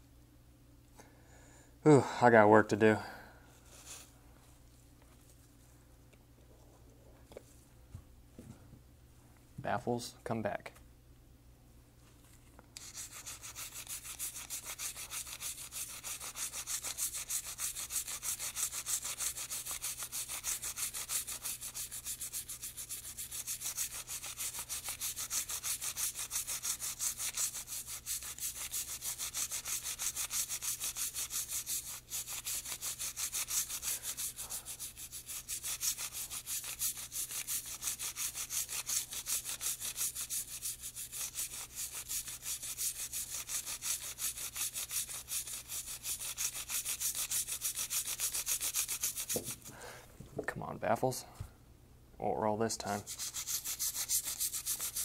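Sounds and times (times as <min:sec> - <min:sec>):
toothbrush scrubbing metal: 0:12.8 - 0:49.7, 0:53.0 - 0:55.0.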